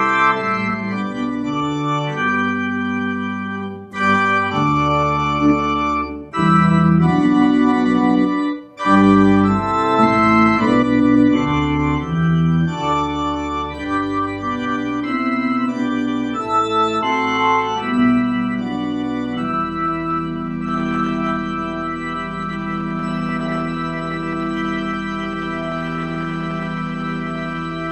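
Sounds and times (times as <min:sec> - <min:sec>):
organ playing sustained chords: 0:00.0 - 0:27.9.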